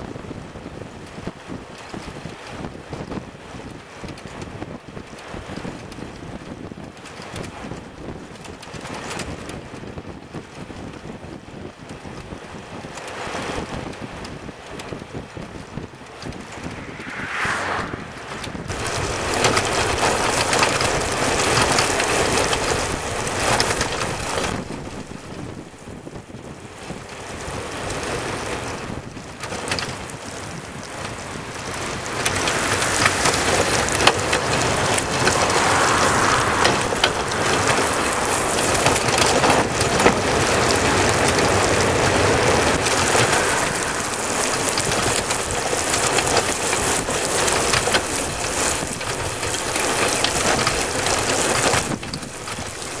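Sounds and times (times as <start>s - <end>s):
wind rushing over microphone: 0.0s - 53.0s
tyre noise on asphalt: 15.4s - 53.0s.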